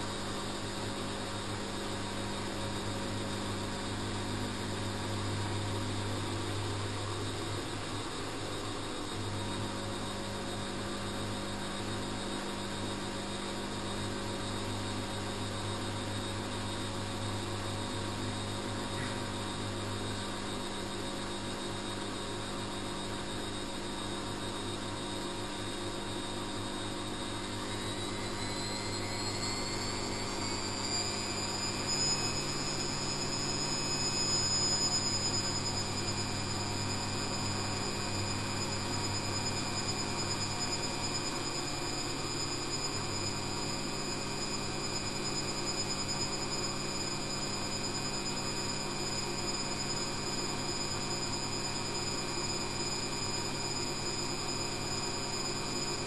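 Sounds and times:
washing machine whine: 0.0s - 56.0s
washing machine motor hum: 27.4s - 56.0s.

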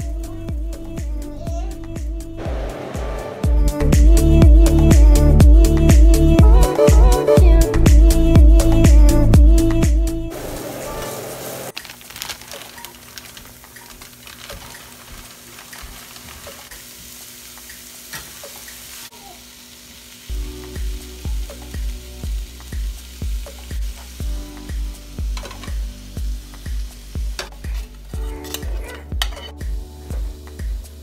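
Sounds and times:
background music with low beat: 0.0s - 11.7s, 20.3s - 31.0s
onions sizzling in a pan: 10.3s - 31.0s
spatula stirring and scraping: 25.4s - 25.8s.

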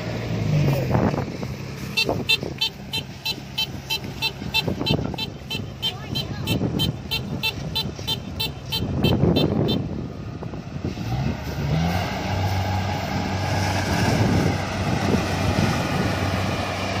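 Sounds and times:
harvester engine revving: 0.0s - 17.0s.

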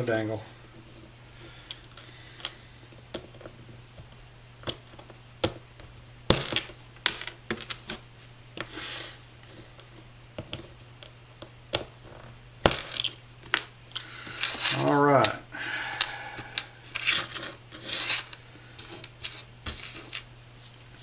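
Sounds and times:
small parts being handled: 11.7s - 15.4s, 16.0s - 20.3s.

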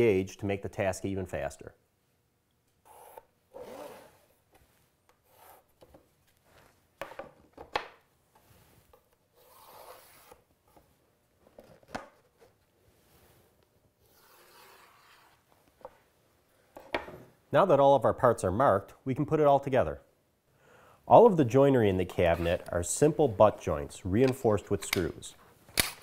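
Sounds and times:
pencil scratching on plywood: 5.2s - 5.8s.

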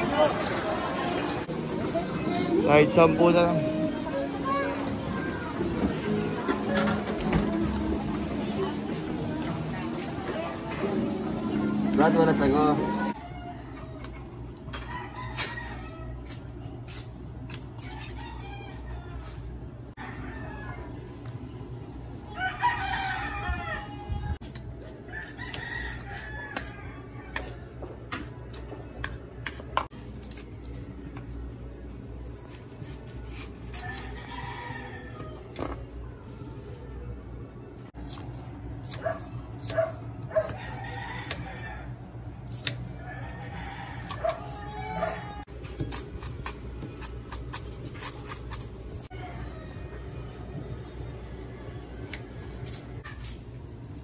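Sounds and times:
rooster crowing: 22.3s - 24.1s, 25.1s - 27.6s, 33.8s - 35.4s, 40.3s - 42.0s, 43.0s - 45.4s.

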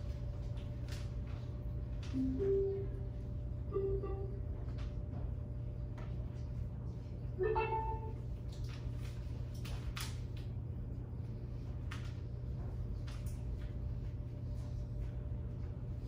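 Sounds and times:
steady low hum: 0.0s - 16.0s
faint clicks and rustles: 8.4s - 16.0s.

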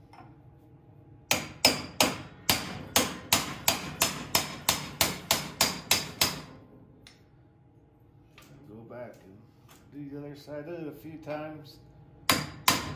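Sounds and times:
hammer striking chisel on metal: 1.3s - 6.6s, 12.3s - 12.9s.

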